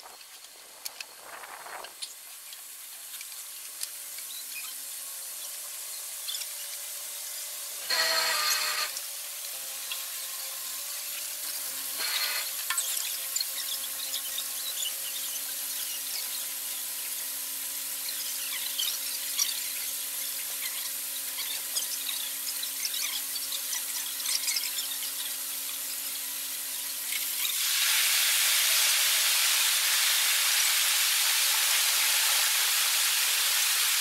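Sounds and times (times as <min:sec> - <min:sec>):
short high squeals: 0:07.8 - 0:09.0, 0:12.0 - 0:16.6.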